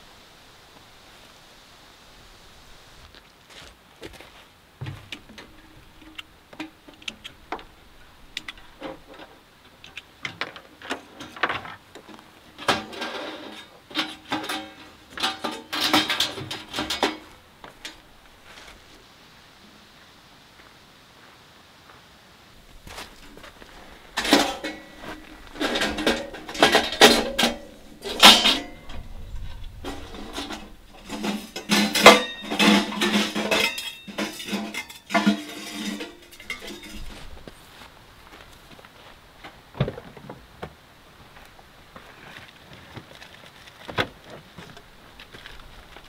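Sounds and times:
metal panels clanking and rattling: 10.2s - 18.0s, 23.2s - 37.3s
clicks and rustles of gear: 42.0s - 46.0s.

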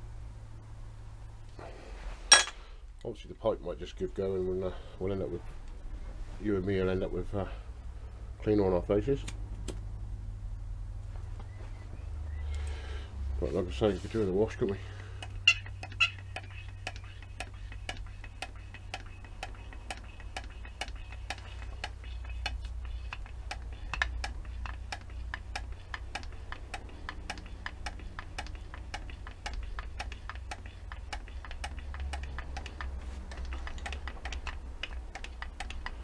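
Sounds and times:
low steady hum: 0.0s - 36.0s
grease gun pumping and clicking: 15.0s - 36.0s.

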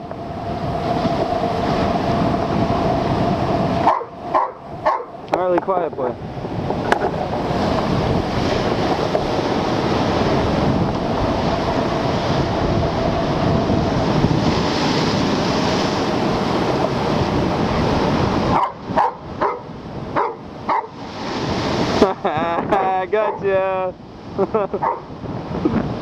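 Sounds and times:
waves crashing against rocks: 0.0s - 26.0s
wind buffeting microphone: 0.0s - 26.0s
dog barking: 3.8s - 5.2s, 18.5s - 21.0s, 24.8s - 25.1s.

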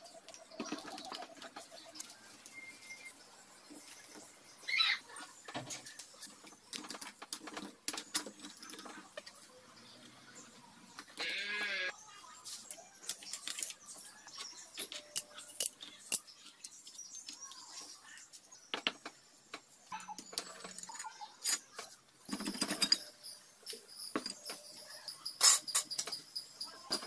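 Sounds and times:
metal engine parts clinking: 22.3s - 27.0s.

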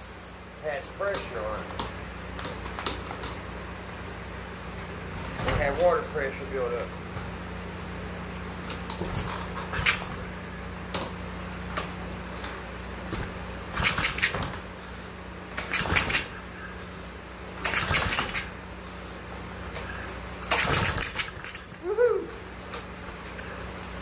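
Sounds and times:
pull-starter cranking small engine: 8.9s - 10.2s, 13.7s - 14.6s, 15.5s - 16.4s, 17.5s - 18.6s, 19.6s - 21.8s.

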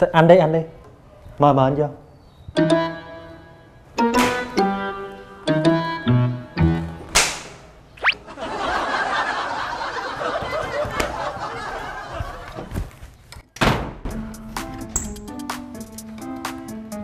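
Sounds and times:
rising whistle sound effect: 8.0s - 8.3s
wooden door slamming: 13.6s - 14.2s.

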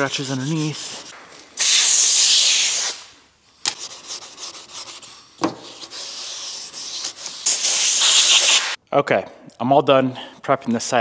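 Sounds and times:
sandpaper rubbing on metal panel: 0.0s - 3.0s, 3.8s - 8.8s
air blow gun hissing: 1.6s - 3.1s, 7.4s - 8.8s.

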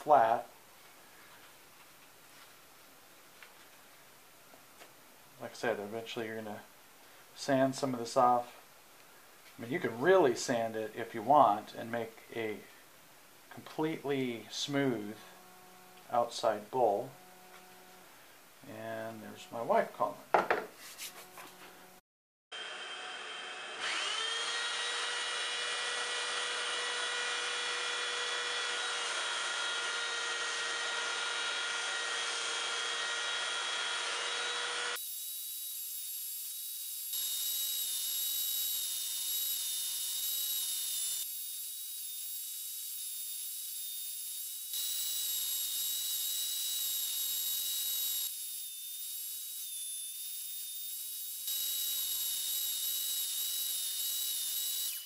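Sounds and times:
belt sander whining: 22.6s - 55.0s.

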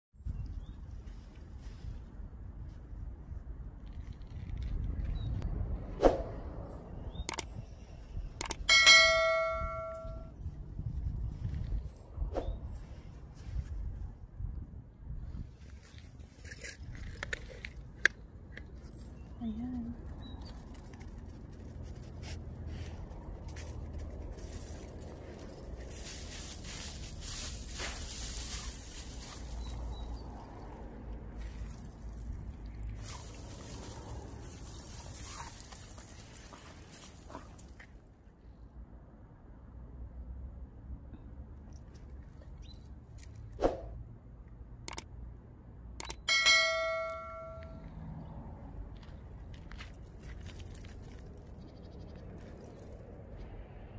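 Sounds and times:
bell-like notification ding: 8.7s - 10.3s, 46.3s - 47.8s
frost crystals crunching: 23.6s - 30.2s, 31.4s - 37.7s
mouse clicks: 44.9s - 45.1s.

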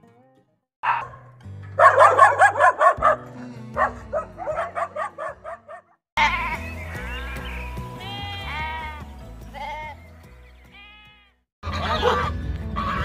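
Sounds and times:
background music: 0.0s - 13.0s
dog barking: 0.8s - 6.0s
sheep bleating: 6.2s - 10.1s, 10.7s - 11.9s.

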